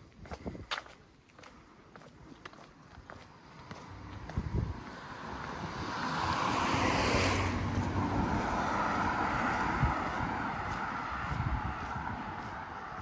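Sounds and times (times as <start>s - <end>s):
steady traffic noise: 0.0s - 13.0s
vehicle passing close: 3.3s - 13.0s.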